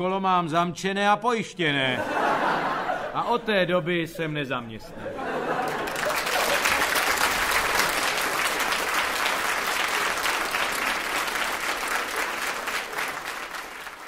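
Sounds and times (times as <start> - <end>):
audience applauding: 5.5 - 14.0.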